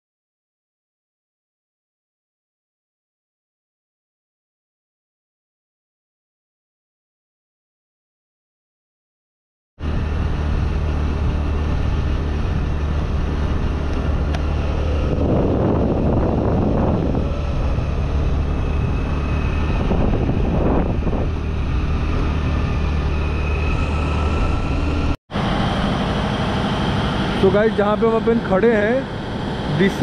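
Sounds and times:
road and wind noise: 9.8s - 30.0s
vehicle engine humming: 9.8s - 30.0s.

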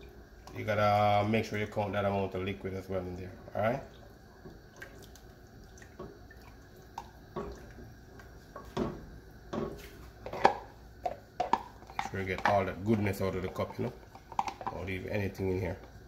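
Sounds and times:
liquid dripping into pot: 3.8s - 9.7s
wooden spoon tapping and scraping: 8.2s - 15.0s.

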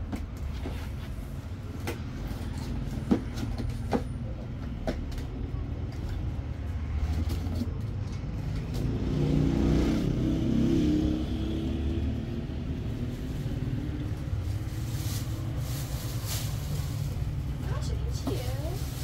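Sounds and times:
vehicle engine low rumble: 0.0s - 19.0s.

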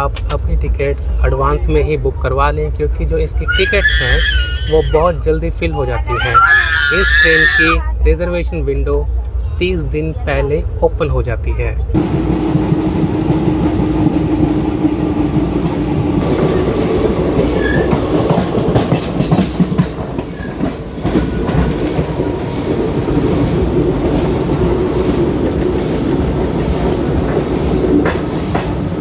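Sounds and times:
train rumbling: 0.0s - 29.0s.

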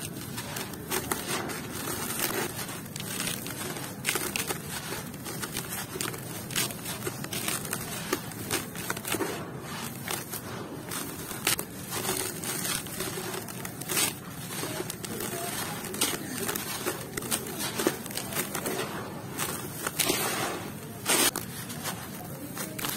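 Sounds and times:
dry cement clumps crumbled by hand: 0.0s - 22.9s.

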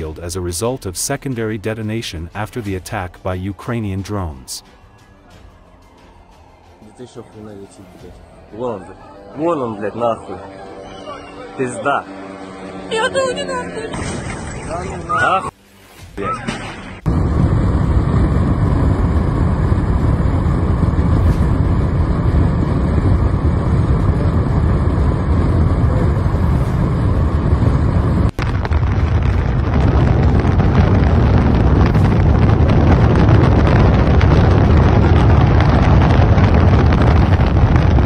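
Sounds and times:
wind buffeting microphone: 17.0s - 38.0s.

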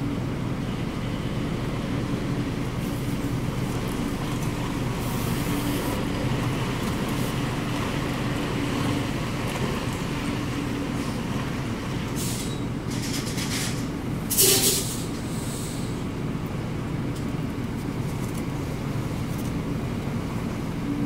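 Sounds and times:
truck diesel engine running: 0.0s - 20.5s
air brake hisses: 12.2s - 12.7s, 14.3s - 16.0s.

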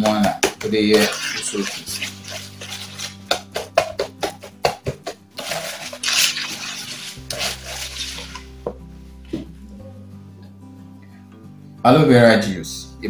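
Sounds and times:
stick scraping plastic bowl: 0.0s - 8.7s
stick knocking on plastic bowl: 3.2s - 5.2s.

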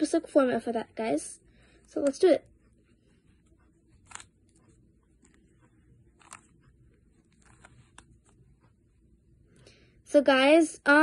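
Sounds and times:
puzzle cube clicking: 4.0s - 4.4s, 6.1s - 6.5s.

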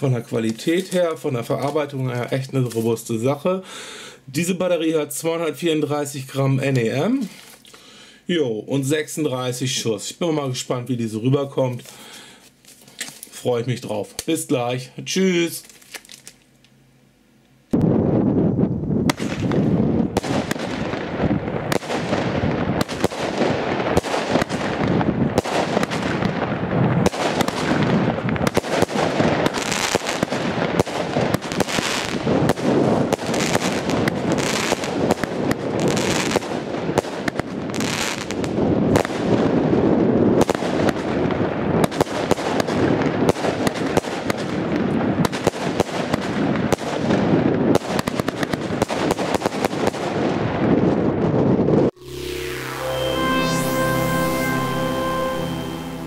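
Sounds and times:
firework launch thumps and bursts: 19.1s - 21.0s
hissing crackle of firework stars: 27.0s - 39.3s.

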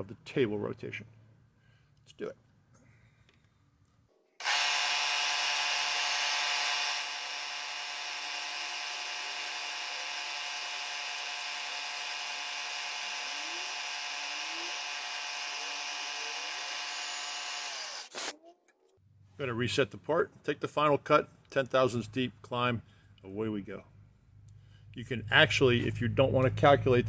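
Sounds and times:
milling machine whine: 4.4s - 18.1s.

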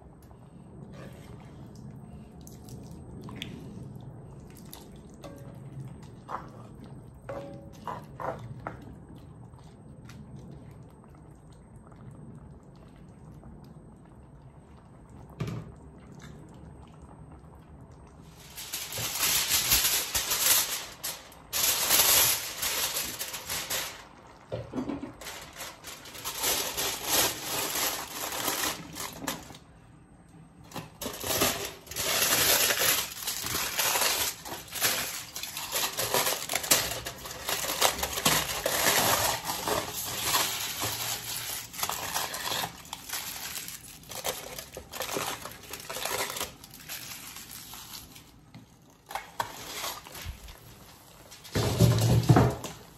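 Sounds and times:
aluminium foil crinkling: 18.2s - 29.8s, 30.7s - 52.9s.

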